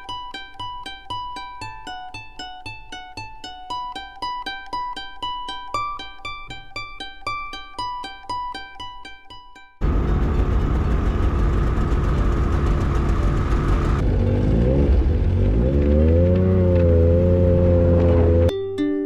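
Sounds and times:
snowmobile engines running: 9.8 - 18.5
snowmobile pulling away: 9.8 - 18.5.

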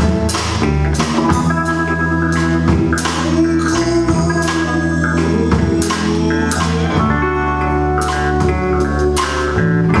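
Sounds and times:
keyboard chords: 0.0 - 10.0
rock band playing: 0.0 - 10.0.

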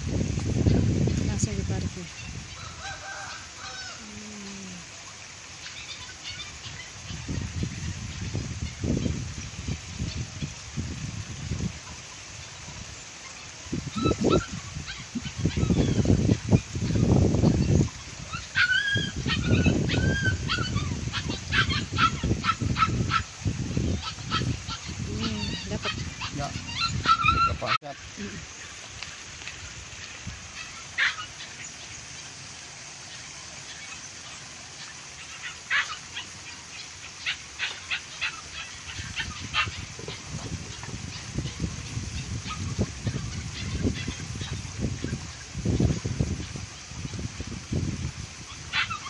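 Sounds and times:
low rumbling on microphone: 0.0 - 2.5, 13.7 - 28.5, 39.0 - 48.5.

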